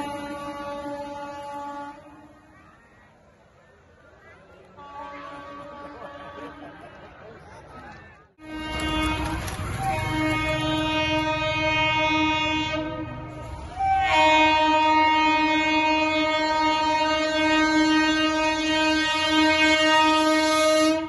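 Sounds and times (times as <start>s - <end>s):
locomotive horn blasts: 0.0s - 2.3s, 4.8s - 6.7s, 8.4s - 21.0s.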